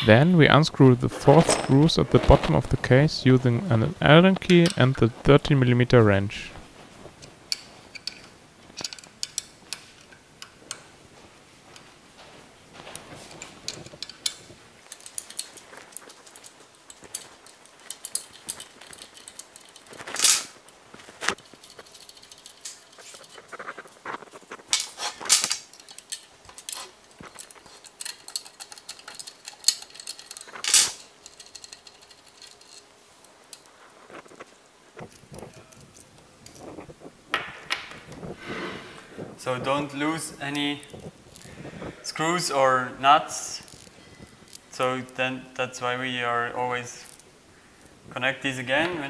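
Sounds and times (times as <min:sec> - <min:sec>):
small metal parts handled: 0:01.1 - 0:02.7, 0:07.2 - 0:10.8, 0:12.8 - 0:38.3, 0:43.5 - 0:44.8
tools clicking on metal screws: 0:07.5 - 0:10.8, 0:13.3 - 0:20.8, 0:21.4 - 0:23.5, 0:24.6 - 0:33.7.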